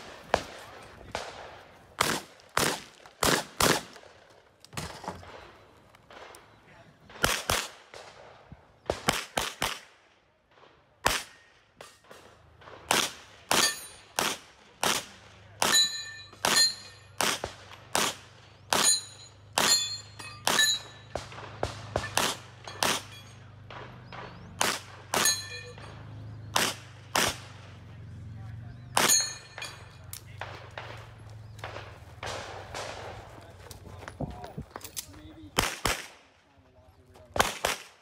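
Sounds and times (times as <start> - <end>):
gunshots: 0.0 - 28.0, 28.8 - 33.6, 35.5 - 36.3, 37.3 - 38.0
steel targets ringing: 13.5 - 14.2, 15.6 - 17.2, 18.8 - 23.7, 25.1 - 26.4, 28.9 - 30.1.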